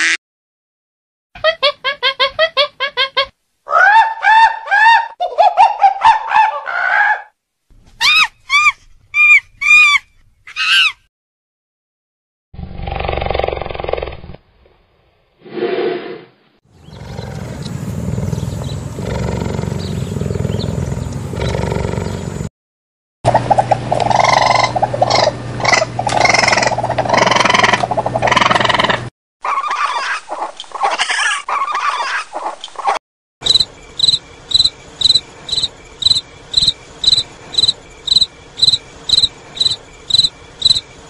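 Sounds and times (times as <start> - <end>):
monkey calls: 1.4 - 7.3, 8.0 - 11.0, 24.0 - 32.5
monkey growling: 16.8 - 22.5, 24.0 - 29.1.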